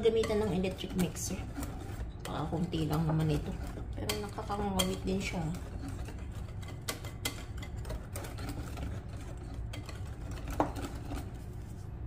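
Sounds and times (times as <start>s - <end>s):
whisk beating batter in glass bowl: 0.0s - 11.8s.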